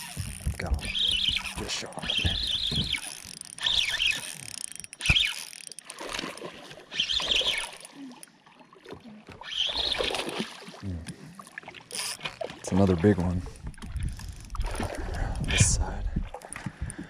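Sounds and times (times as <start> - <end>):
fishing reel cranking: 0.0 - 8.3, 11.9 - 12.4, 13.5 - 15.5.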